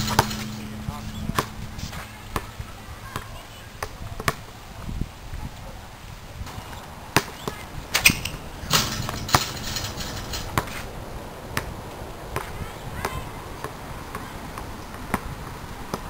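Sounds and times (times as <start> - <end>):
basketball bouncing on asphalt: 0.0 - 4.6, 6.5 - 9.6, 10.4 - 10.9, 11.5 - 16.0.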